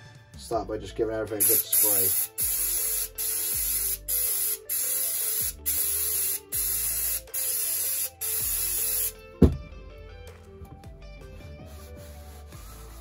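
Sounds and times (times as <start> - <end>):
aerosol spray hissing: 1.4 - 9.2, 11.6 - 13.0.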